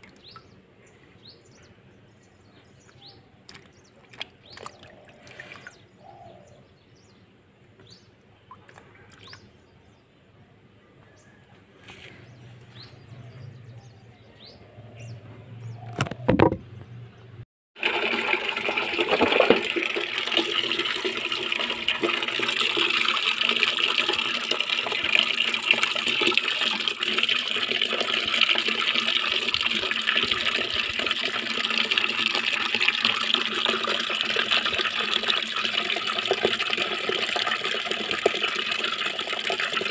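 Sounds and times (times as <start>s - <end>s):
thump: 16.0s - 16.7s
water gushing into metal basin: 17.8s - 39.9s.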